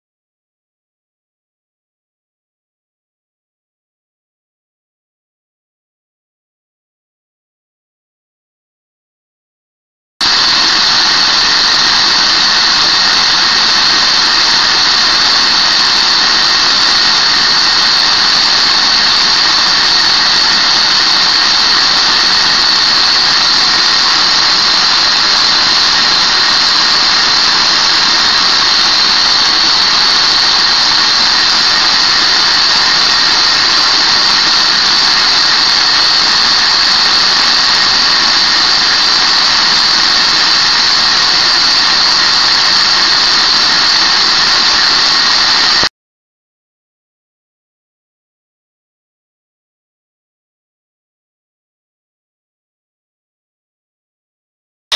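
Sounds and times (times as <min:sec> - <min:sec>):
high-pitched rush of air: 0:10.2 - 0:45.9.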